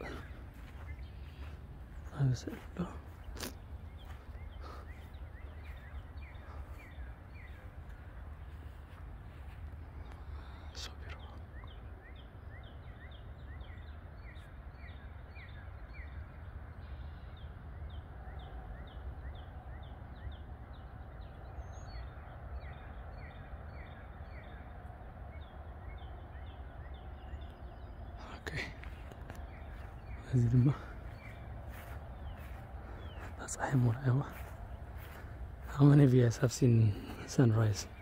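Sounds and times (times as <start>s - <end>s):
steady low rumble: 0.0s - 14.0s, 16.2s - 38.0s
chorus of high chirping calls: 0.0s - 16.2s, 25.9s - 38.0s.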